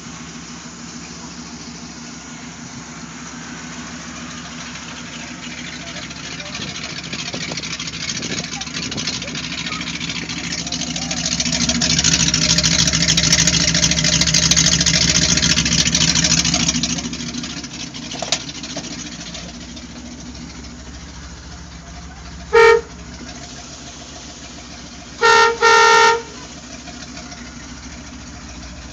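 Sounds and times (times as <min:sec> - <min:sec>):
truck engine idling: 0:00.0 - 0:28.9
truck horn honking: 0:21.9 - 0:23.4, 0:25.0 - 0:27.5.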